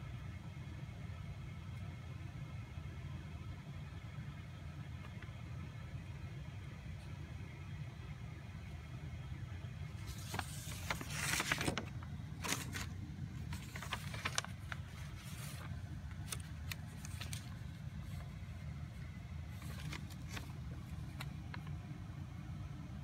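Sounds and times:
steady low hum: 0.0 - 23.0
paper pages rustling: 9.8 - 22.0.

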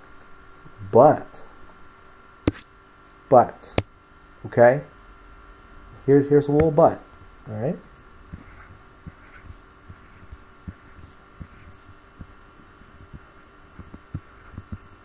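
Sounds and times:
steady electrical hum: 0.0 - 15.0
soft low drawing thumps: 2.5 - 2.7.

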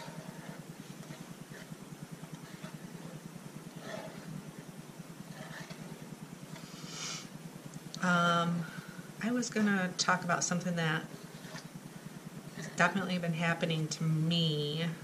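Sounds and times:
low fluttering hum: 0.0 - 15.0.

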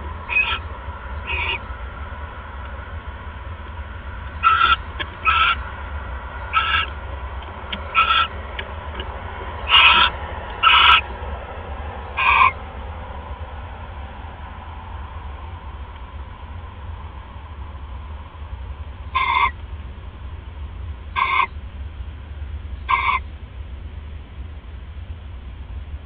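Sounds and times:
barn owl calls: 0.0 - 13.1, 19.0 - 19.7, 21.0 - 21.6, 22.7 - 23.4
steady low hum: 0.0 - 26.0.

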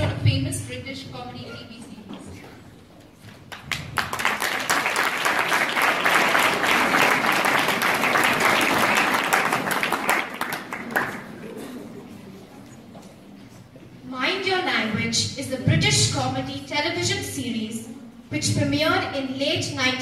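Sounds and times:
audience applauding: 3.4 - 11.8.

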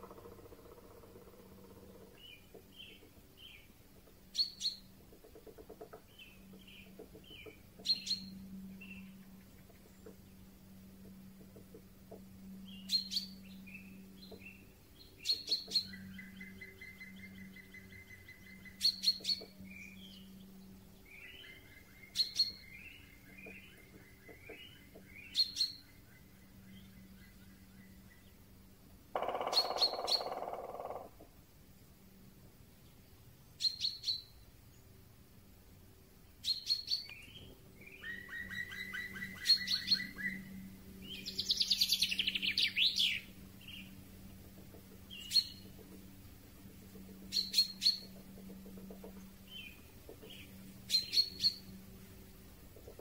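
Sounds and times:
faint steady hum: 0.0 - 53.0
bird call notes: 29.2 - 31.2, 36.4 - 44.0, 47.2 - 51.9.

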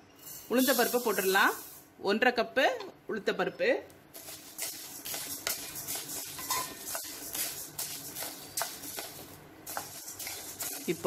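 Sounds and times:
spatula stirring grains in a pan: 0.2 - 1.8, 4.1 - 11.0.

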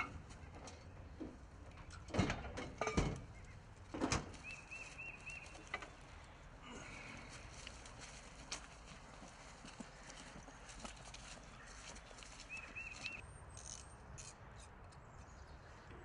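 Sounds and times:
work gear knocking and clanking: 0.0 - 4.6
small bird calling: 9.9 - 13.2.

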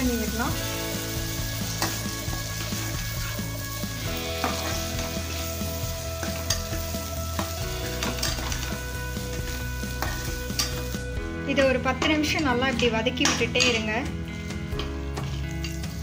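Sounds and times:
vegetables sizzling in oil: 0.0 - 11.2, 15.1 - 16.0
spatula stirring and scraping: 1.0 - 11.1.

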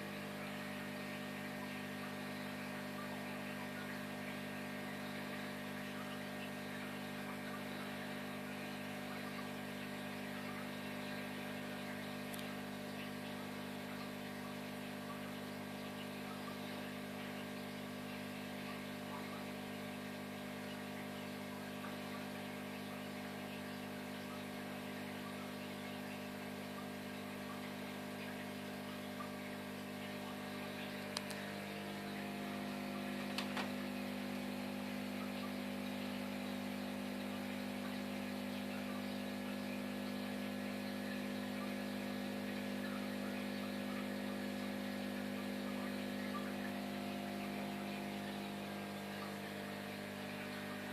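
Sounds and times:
aquarium equipment humming: 0.0 - 50.9
small clicks: 31.1 - 31.4.

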